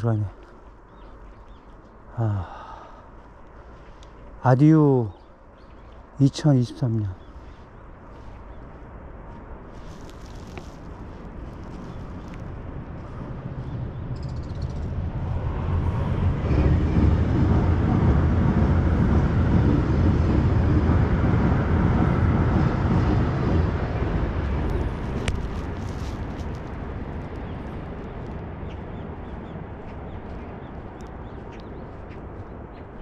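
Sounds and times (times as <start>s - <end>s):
vehicle passing: 6.1s - 33.0s.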